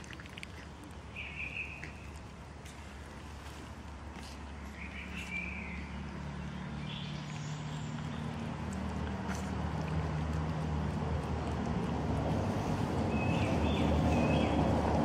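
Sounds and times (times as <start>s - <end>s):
low engine rumble: 0.0s - 15.0s
cats chewing wet food: 6.2s - 15.0s.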